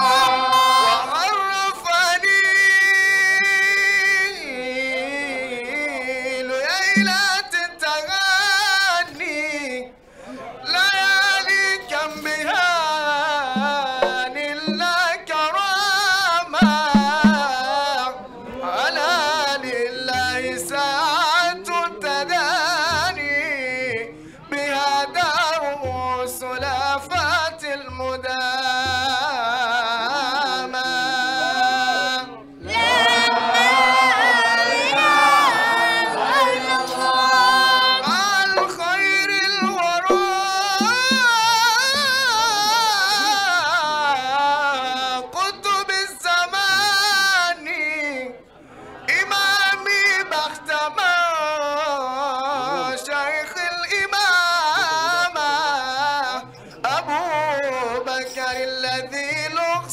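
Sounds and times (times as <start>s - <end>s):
melismatic devotional singing: 0.0s - 10.0s, 10.6s - 48.4s
low drum beats: 7.0s - 7.3s, 13.6s - 15.0s, 16.6s - 17.6s, 38.0s - 38.9s, 39.6s - 42.4s.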